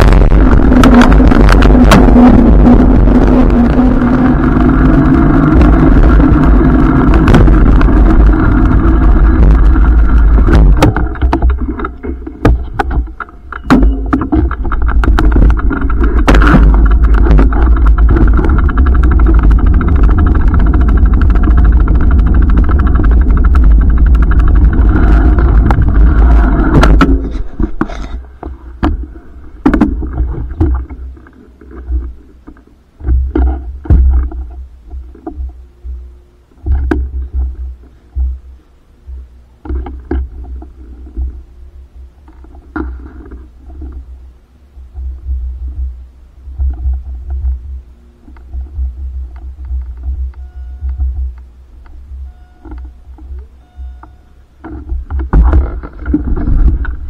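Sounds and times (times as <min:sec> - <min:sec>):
wind buffeting microphone: 0:00.0 - 0:31.2, 0:54.7 - 0:57.0
bicycle rattles and knocks: 0:00.0 - 0:36.0, 0:36.6 - 0:38.4, 0:39.6 - 0:41.4, 0:44.9 - 0:57.0.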